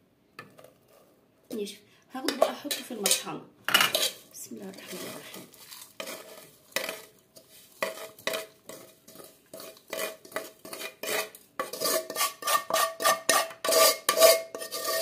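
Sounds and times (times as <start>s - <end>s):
scraping a ringing metal pot: 7.8s - 15.0s.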